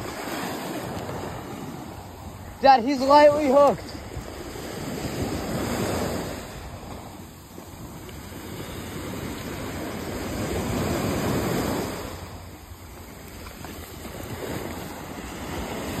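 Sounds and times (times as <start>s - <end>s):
small waves washing on shore: 0.0s - 16.0s.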